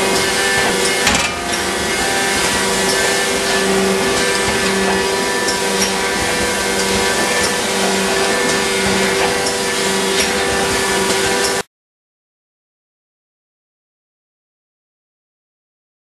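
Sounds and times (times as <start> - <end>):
machine hum with pulsing low tone: 0.0 - 11.6.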